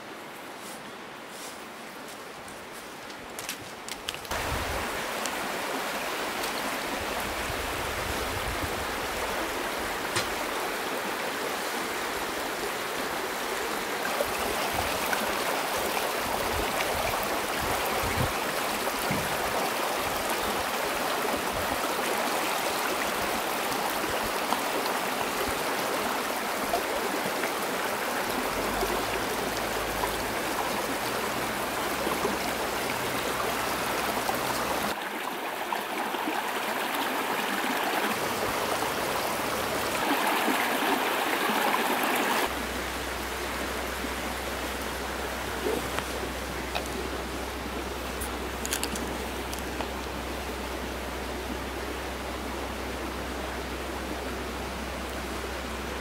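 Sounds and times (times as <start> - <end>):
stream splashing over stones: 8.8 - 51.0.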